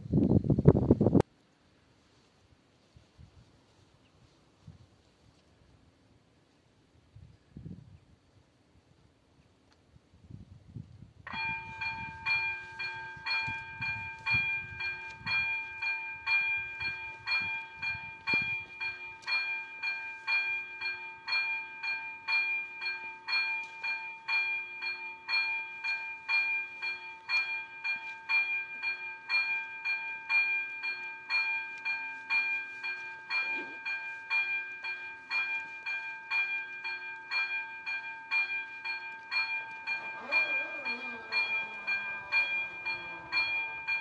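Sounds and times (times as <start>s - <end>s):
level crossing warning bell ringing: 11.3s - 44.0s.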